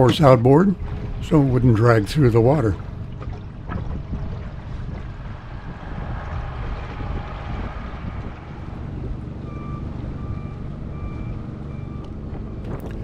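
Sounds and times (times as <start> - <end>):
outboard motor droning: 0.0 - 13.0
water noise: 0.0 - 13.0.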